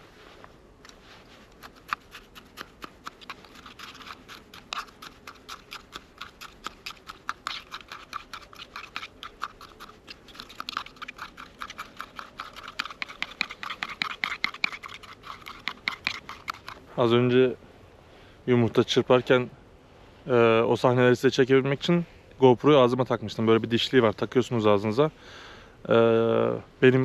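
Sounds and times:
eggs beaten by hand: 1.6 - 16.8.

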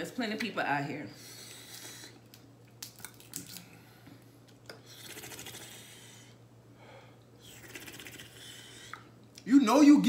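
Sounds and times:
crab shells cracking: 2.2 - 3.7.

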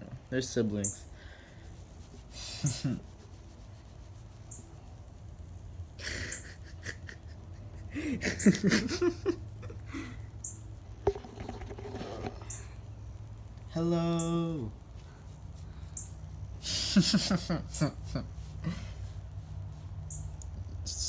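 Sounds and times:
fur rubbing on microphone: 1.6 - 4.6, 11.0 - 12.5, 18.1 - 20.1.

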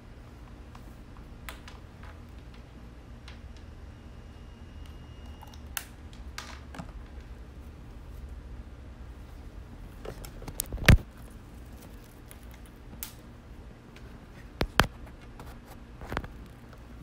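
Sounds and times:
low steady hum: 0.0 - 17.0
sound card and cables clicking: 10.0 - 13.2, 14.6 - 15.3.

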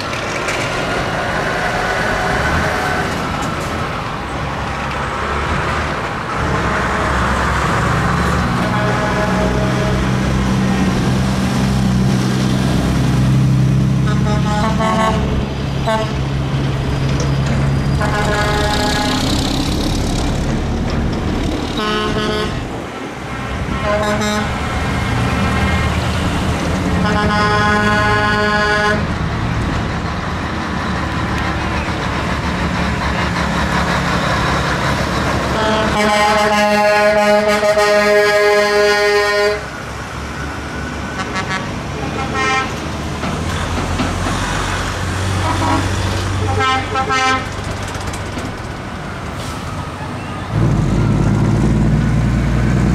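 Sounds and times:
trucks rumbling past: 0.0 - 52.9
truck horn blasts: 6.4 - 7.4, 8.4 - 10.3, 14.0 - 16.2, 18.0 - 19.5, 21.7 - 22.7, 23.7 - 24.7, 27.0 - 29.1, 35.5 - 39.8, 41.1 - 42.8, 45.4 - 47.5.

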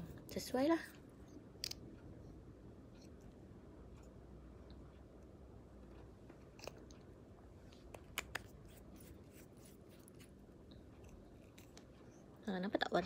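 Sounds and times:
low room hiss: 0.0 - 13.0
plastic tube and cap clicking: 7.9 - 8.5.

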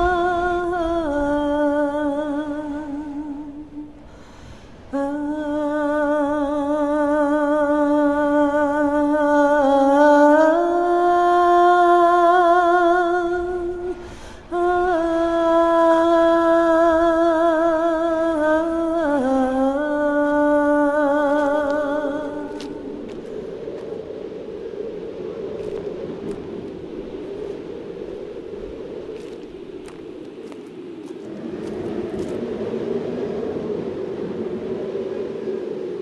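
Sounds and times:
woman breathing: 4.0 - 4.9, 14.0 - 14.5
woman humming a melody: 5.0 - 22.6.

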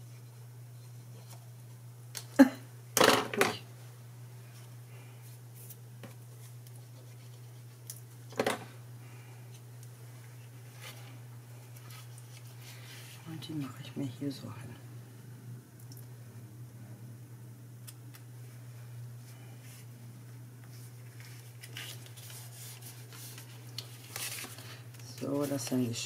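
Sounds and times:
low steady hum: 0.0 - 26.0
rustle of card: 20.6 - 25.8.

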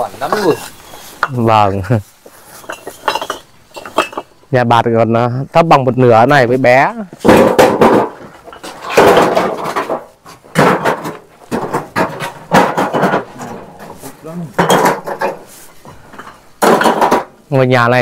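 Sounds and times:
people talking: 0.0 - 2.1, 4.5 - 7.2, 13.4 - 14.8, 17.5 - 18.0
bricks knocking and clinking: 2.4 - 4.3, 7.2 - 14.0, 14.6 - 17.4.

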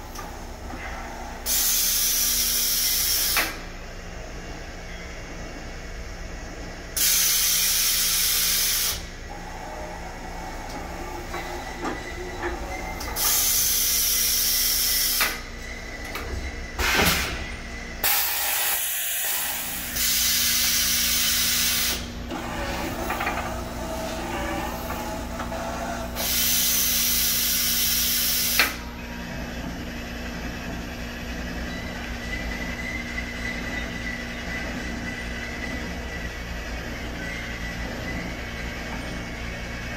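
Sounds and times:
compressed air hiss: 26.2 - 28.7.

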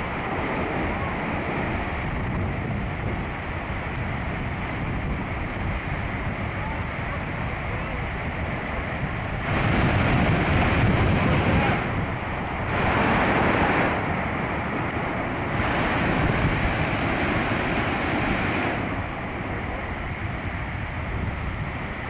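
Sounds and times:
heavy surf breaking on shore: 0.0 - 22.0
wind buffeting microphone: 0.0 - 22.0.

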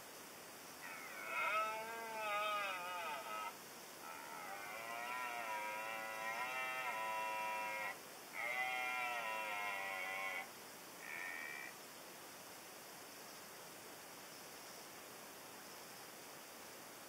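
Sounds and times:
deer stag roaring: 0.8 - 11.7.

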